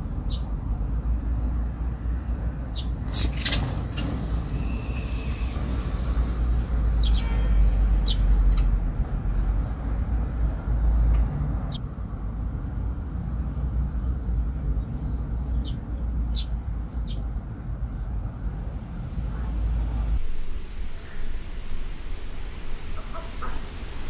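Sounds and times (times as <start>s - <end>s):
sparrows chirping: 0.0s - 12.1s, 12.8s - 20.2s
low rumble: 19.4s - 24.0s.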